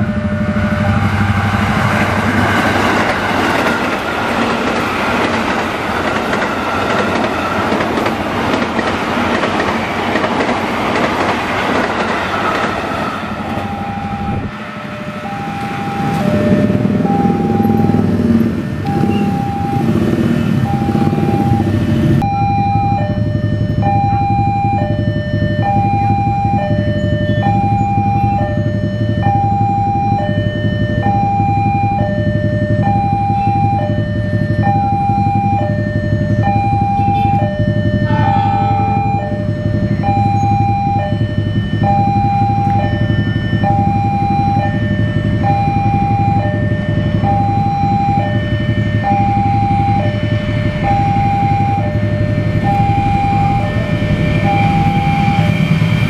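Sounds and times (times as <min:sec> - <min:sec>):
two-tone level crossing alarm: 0:00.0 - 0:56.0
continuous low rumble: 0:20.6 - 0:56.0.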